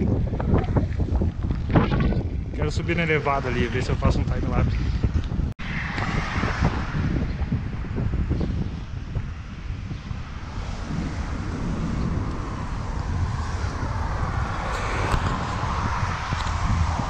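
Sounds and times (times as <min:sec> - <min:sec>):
wind buffeting microphone: 0:00.0 - 0:17.0
road traffic passing: 0:05.0 - 0:17.0.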